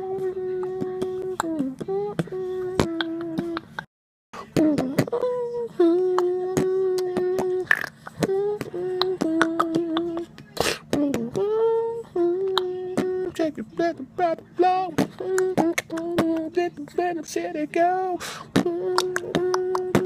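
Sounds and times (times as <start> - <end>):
man beatboxing hummed notes: 0.0 - 20.0
sharp mouth clicks: 7.0 - 8.0.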